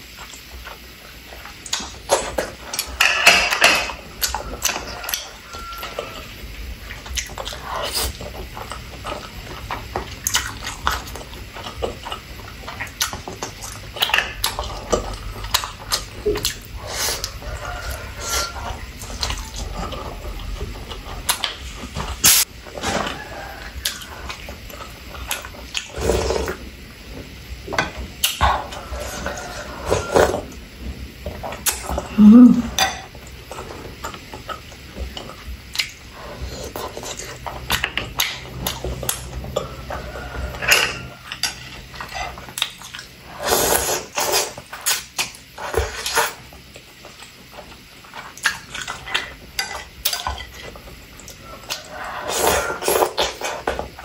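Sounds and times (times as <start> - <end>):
wet chewing and mouth smacks: 34.1 - 36.0
noodles slurped: 42.0 - 47.2.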